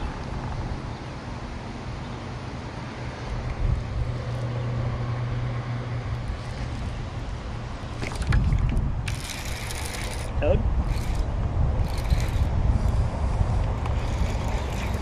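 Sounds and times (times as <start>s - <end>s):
wind on microphone: 3.4s - 15.0s.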